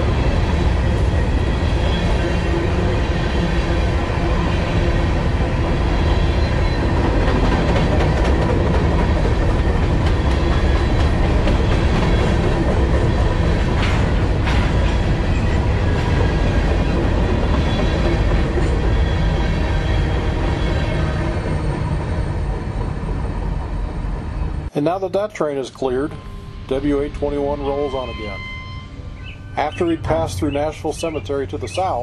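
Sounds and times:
train wheels rumbling on rail: 0.0 - 24.7.

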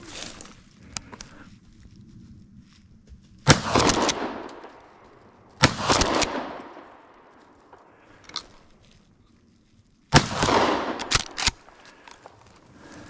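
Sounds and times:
shotgun blasts: 3.5 - 4.8, 5.6 - 7.8, 10.1 - 11.8
gunshot echo rolling away: 3.5 - 8.0, 10.1 - 11.8.

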